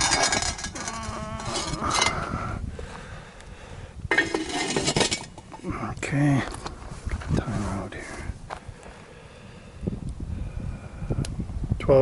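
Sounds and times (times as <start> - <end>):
metal lid clanking and scraping: 0.0 - 2.2, 4.1 - 5.6.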